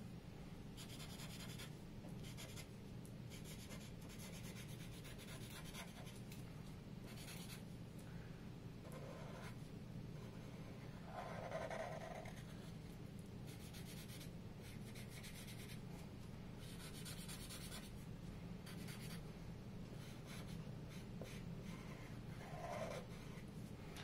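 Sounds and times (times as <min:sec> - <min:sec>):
marker scratching on paper: 0:00.8 - 0:02.7, 0:03.3 - 0:06.2, 0:07.1 - 0:07.6, 0:08.9 - 0:09.6, 0:11.2 - 0:12.7, 0:13.5 - 0:15.8, 0:16.6 - 0:17.9, 0:18.7 - 0:19.2, 0:20.0 - 0:23.4.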